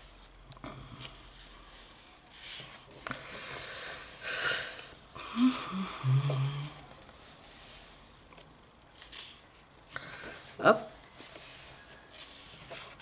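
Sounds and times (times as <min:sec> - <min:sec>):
paper pages rustling: 0:08.3 - 0:09.6, 0:11.0 - 0:13.0.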